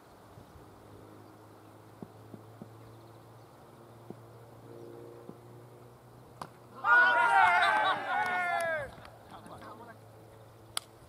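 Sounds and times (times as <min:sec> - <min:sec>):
soft scattered clicks: 0:08.2 - 0:11.0.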